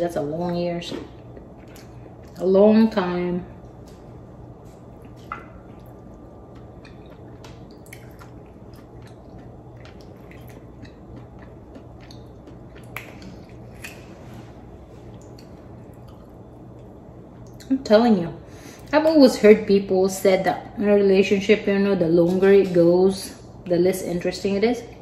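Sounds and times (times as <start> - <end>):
low steady hum: 0.0 - 25.0
wet squishes: 5.0 - 14.2.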